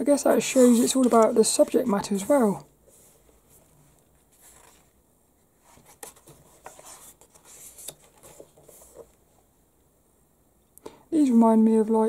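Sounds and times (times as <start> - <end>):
magazine pages rustling: 0.2 - 9.3.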